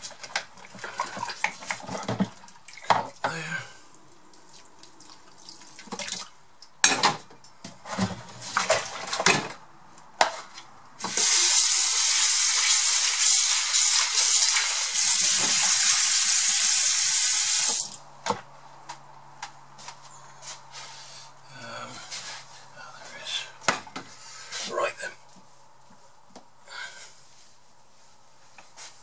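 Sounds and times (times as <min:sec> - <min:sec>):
dishes clattering in plastic bowl: 0:00.2 - 0:03.2, 0:06.8 - 0:09.6.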